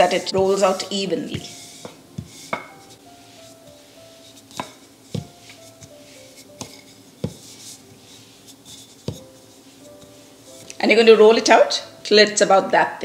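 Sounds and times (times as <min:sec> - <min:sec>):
soft background music: 0:00.0 - 0:13.0
rolling pin knocking on work surface: 0:04.5 - 0:05.4, 0:06.6 - 0:07.5, 0:09.0 - 0:09.3.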